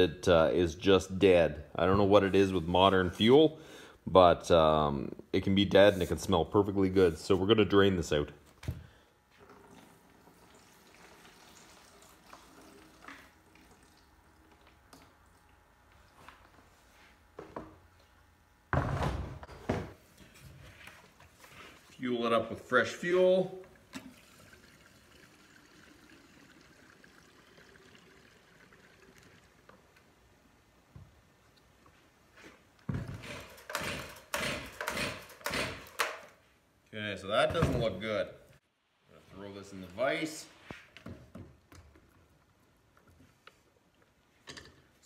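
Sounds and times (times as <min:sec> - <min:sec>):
fuel trickling into plastic jug: 0:23.7 - 0:30.1.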